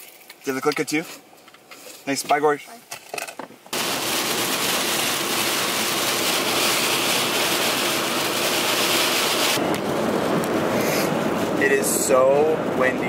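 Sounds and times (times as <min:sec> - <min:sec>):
heavy rain and wind on car: 0:03.8 - 0:13.0.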